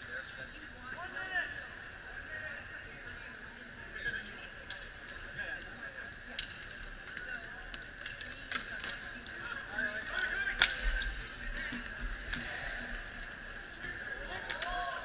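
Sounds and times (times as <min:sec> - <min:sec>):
hockey sticks clacking: 0:06.4 - 0:15.0.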